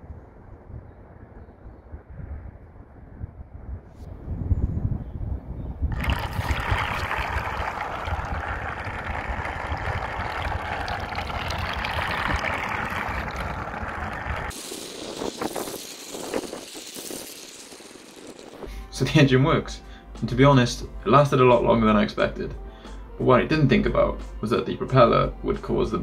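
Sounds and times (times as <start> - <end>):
wind rumbling on microphone: 0.0 - 18.7
boat propeller churning and splashing: 5.9 - 16.6.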